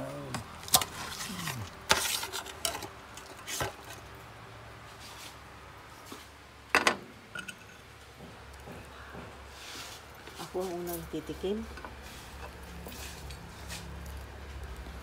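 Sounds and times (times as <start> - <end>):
metal tongs scraping roasting pan: 0.7 - 4.0.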